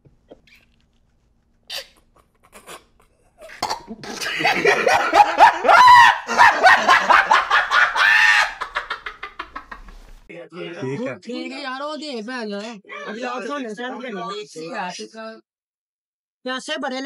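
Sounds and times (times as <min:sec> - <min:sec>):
man screaming: 0:05.4 - 0:08.7.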